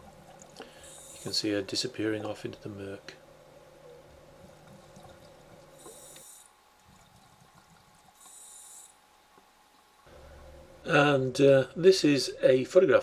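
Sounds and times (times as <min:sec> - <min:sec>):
scuba regulator breathing underwater: 0:00.6 - 0:01.4.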